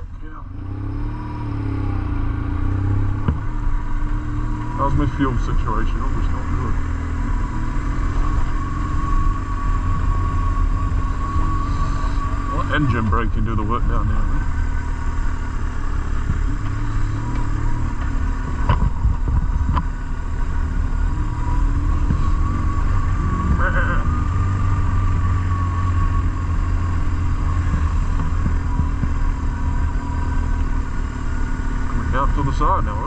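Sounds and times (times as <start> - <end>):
wind rumble on microphone: 15.9 - 30.8.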